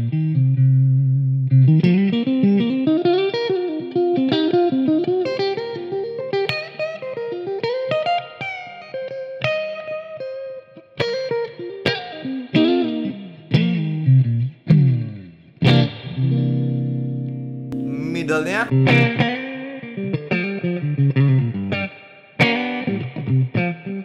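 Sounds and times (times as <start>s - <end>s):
clean electric guitar melody: 0.0s - 24.0s.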